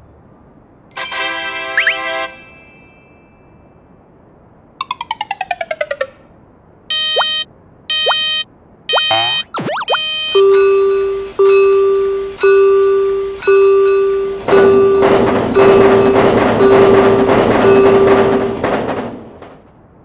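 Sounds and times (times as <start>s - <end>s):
crossing warning bell ringing: 6.9s - 19.3s
train rushing past: 10.3s - 20.0s.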